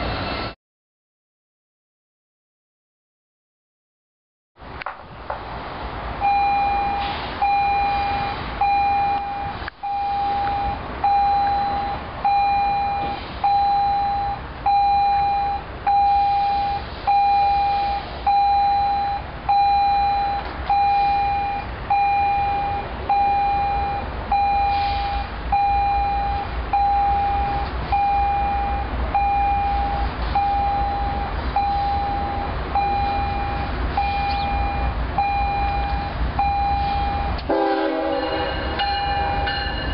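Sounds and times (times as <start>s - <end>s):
locomotive low rumble: 4.6s - 39.9s
crossing warning bell dinging: 6.2s - 39.9s.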